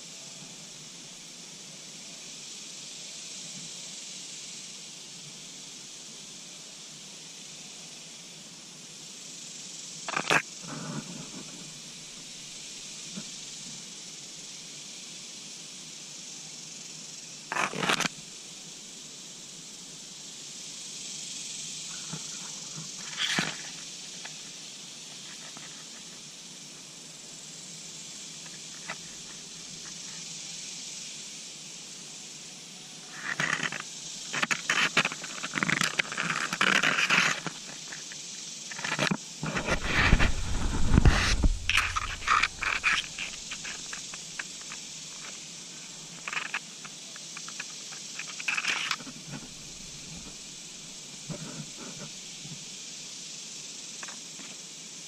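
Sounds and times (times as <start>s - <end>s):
steady high hiss: 0.0s - 55.0s
rustling and scraping: 10.1s - 12.4s, 17.5s - 18.2s, 21.9s - 26.3s, 28.4s - 30.2s, 33.1s - 52.6s
low rumble: 39.7s - 42.8s.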